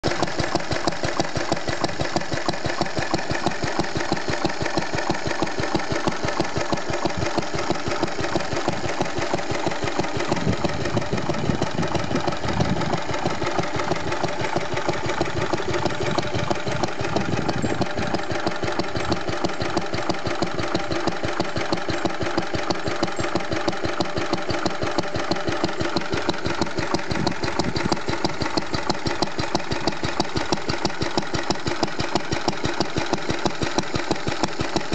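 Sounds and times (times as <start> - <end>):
stationary engine running: 0.0 - 34.9.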